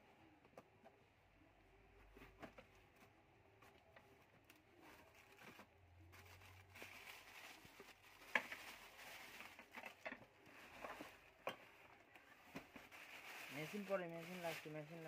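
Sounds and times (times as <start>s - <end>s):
plastic bag rustling and crinkling: 3.6s - 15.0s.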